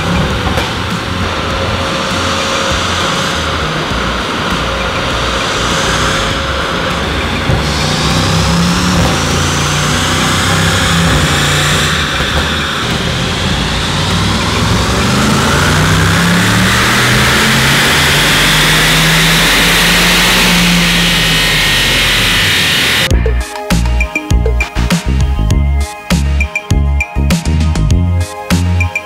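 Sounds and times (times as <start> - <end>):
car engine revving under load: 0.0 - 23.1.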